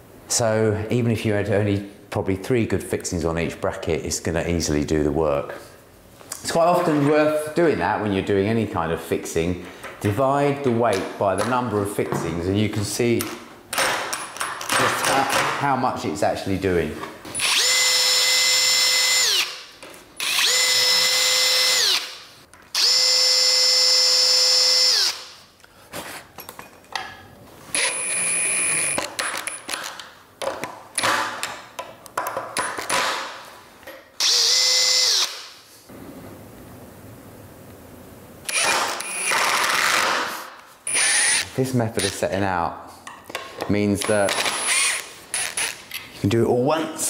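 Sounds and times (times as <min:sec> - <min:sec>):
cordless drill motor whine: 0:17.4 - 0:19.6, 0:20.2 - 0:22.2, 0:22.8 - 0:25.3, 0:27.7 - 0:29.0, 0:34.2 - 0:35.4, 0:38.5 - 0:39.4, 0:40.9 - 0:41.5, 0:44.6 - 0:45.0.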